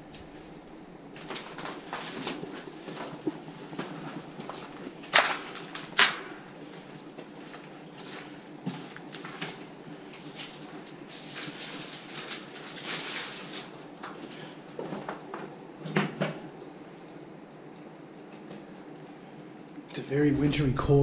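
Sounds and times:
footsteps walking: 0.0s - 15.6s.

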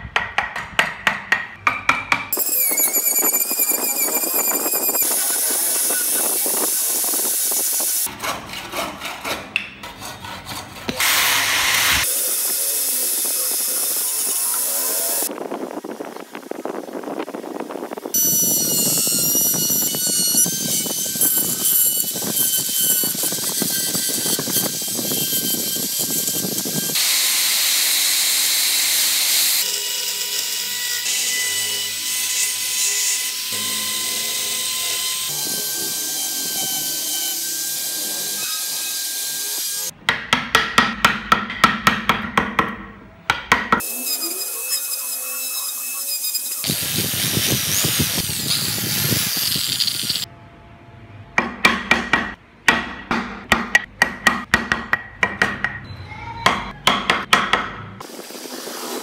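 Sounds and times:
rotary tool motor whine: 2.4s - 8.1s, 43.8s - 50.3s.

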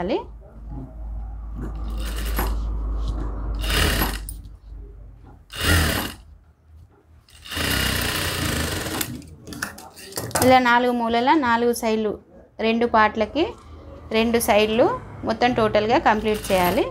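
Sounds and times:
sewing machine stitching: 1.8s - 2.7s, 3.6s - 4.4s, 5.5s - 6.3s, 7.3s - 9.3s, 16.2s - 16.9s.

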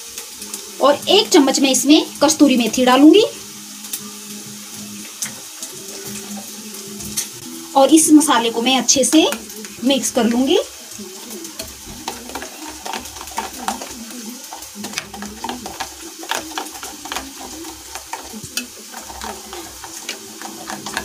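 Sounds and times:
food sizzling in hot oil: 0.0s - 21.0s
spoon scraping glass bowl: 11.0s - 21.0s.

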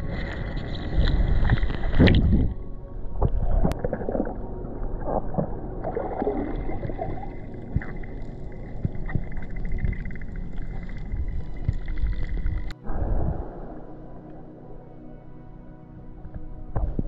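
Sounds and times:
bubbly gurgles: 0.0s - 13.9s
muffled underwater rush: 0.0s - 15.0s.

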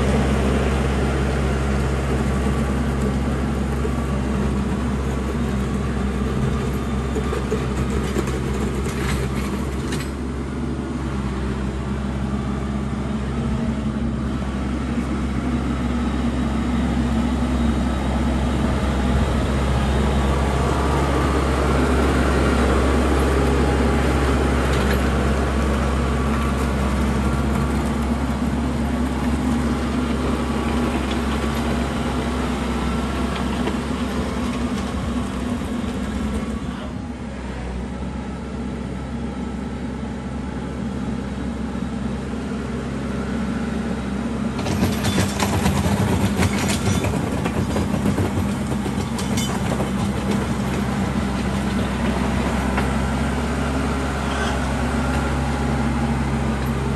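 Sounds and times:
tractor diesel engine running: 0.0s - 56.9s
box blade scraping asphalt: 54.2s - 54.8s.

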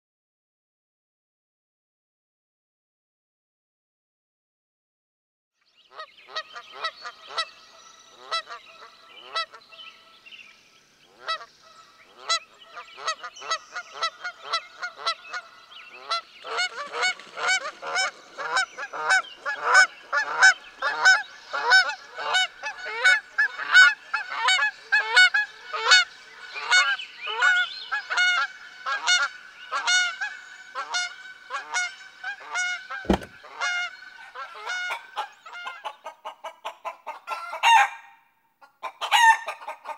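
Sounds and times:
geese honking: 5.9s - 10.1s, 11.1s - 36.0s, 39.0s - 39.9s
dull thump: 33.0s - 33.4s.

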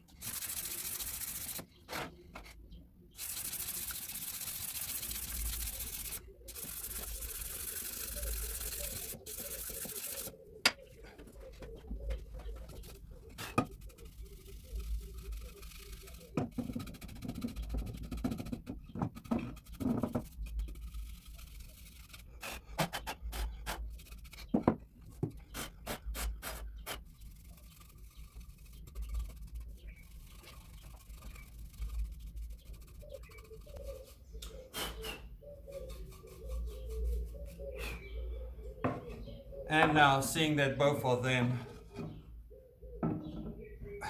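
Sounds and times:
brush scratching on wood: 0.2s - 1.6s, 3.2s - 10.4s, 11.8s - 24.7s, 25.4s - 34.4s, 35.6s - 37.8s.

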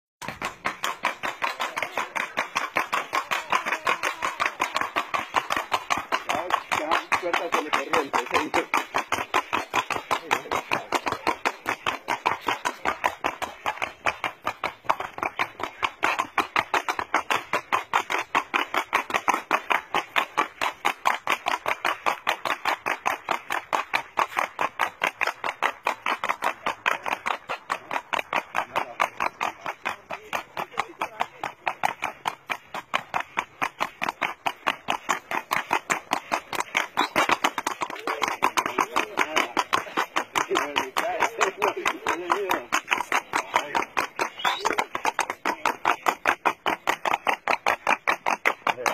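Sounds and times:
horse hooves clattering on asphalt: 0.2s - 48.9s.

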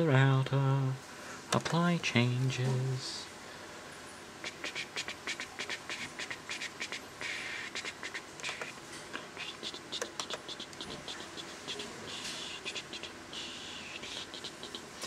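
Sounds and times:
clicks and scratching near microphone: 7.6s - 13.1s.

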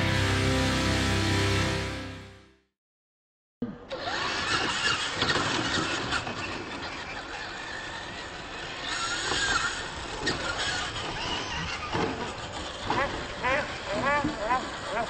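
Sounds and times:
toy truck motors whining: 3.9s - 15.0s.

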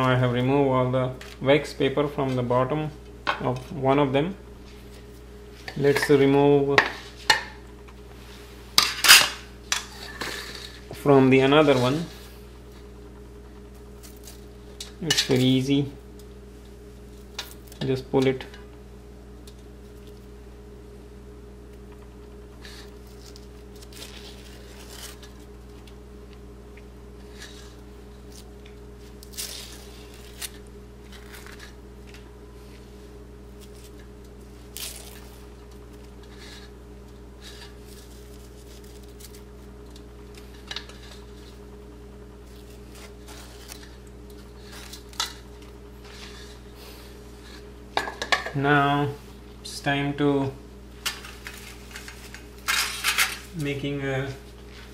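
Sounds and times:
steady low hum: 0.0s - 54.9s
paper peeling and rustling: 22.6s - 26.0s, 27.3s - 31.8s, 33.6s - 36.6s, 37.4s - 41.6s, 42.4s - 46.6s.

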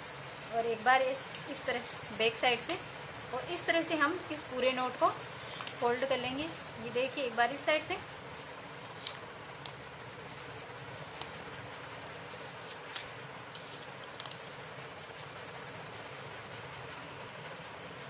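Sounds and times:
background hiss: 0.0s - 18.0s
crisp paper clicks: 5.5s - 5.8s, 8.9s - 9.8s, 12.2s - 14.6s
paper banknote rustling: 8.2s - 15.6s.

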